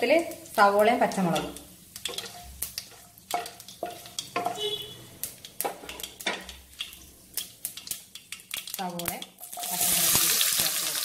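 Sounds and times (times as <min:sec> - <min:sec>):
seeds sizzling and popping in oil: 0:00.0 - 0:11.0
wooden spatula knocking pan: 0:01.3 - 0:04.9, 0:05.6 - 0:07.0.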